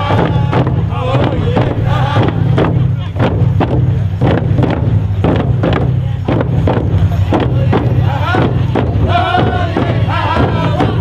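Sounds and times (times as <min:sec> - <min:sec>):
voices singing: 0:00.0 - 0:03.1, 0:07.3 - 0:11.0
drums beating: 0:00.0 - 0:11.0.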